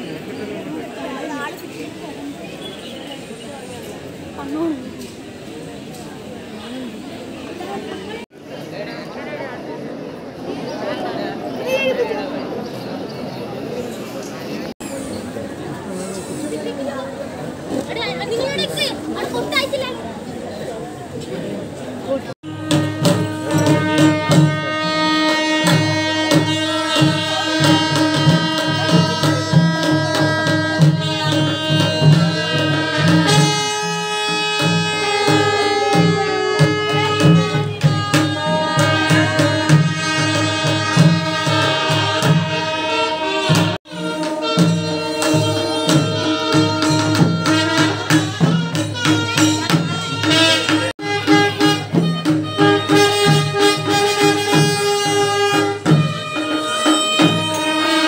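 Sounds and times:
drums beating steady rhythm: 22.4 - 58.0.

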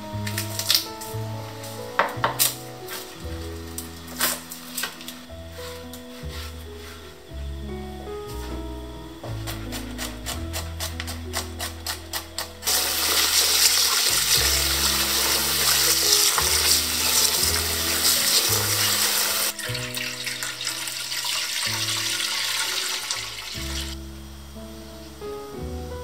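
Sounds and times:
music: 0.0 - 26.0
water pouring into a pan: 12.7 - 24.0
water swishing as rice is washed: 12.7 - 24.0.

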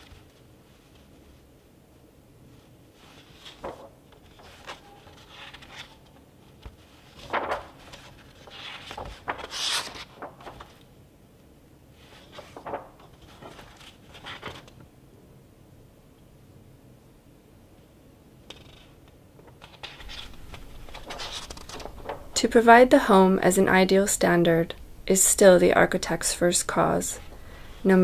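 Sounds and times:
book pages turning: 3.0 - 10.9, 12.0 - 14.9, 18.5 - 22.5.

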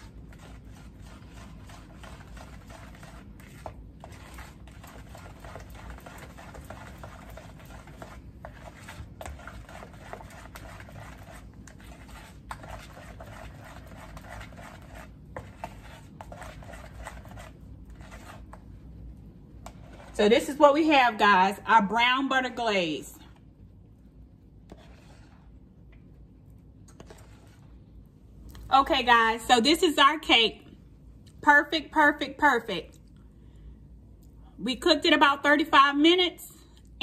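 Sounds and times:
spatula scraping a mixing bowl: 0.0 - 18.7, 19.6 - 21.2, 24.6 - 25.6, 26.8 - 27.8.

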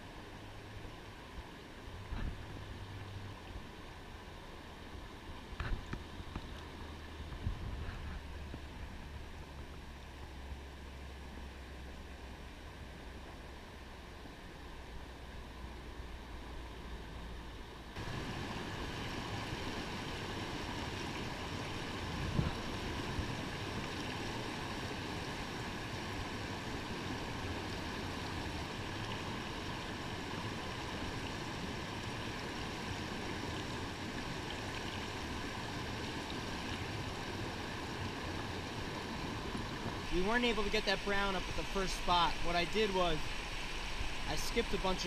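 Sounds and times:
water rushing over rocks: 17.9 - 45.0.

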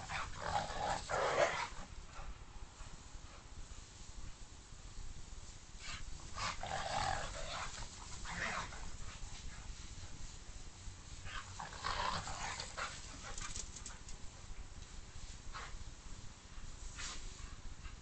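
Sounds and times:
dogs vocalizing while playing: 0.0 - 2.4, 5.8 - 9.8, 11.2 - 14.2.

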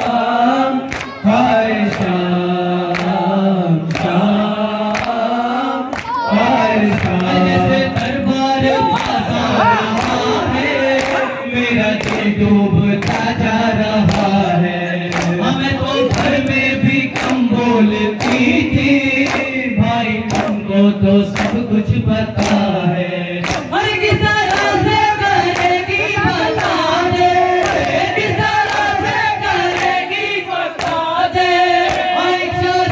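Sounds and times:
men chanting: 0.0 - 32.9
men singing through microphones: 0.0 - 32.9.

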